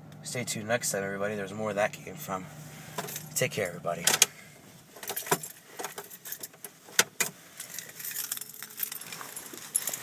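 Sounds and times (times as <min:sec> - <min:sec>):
keys jangling: 0:05.0 - 0:06.6, 0:07.6 - 0:10.0.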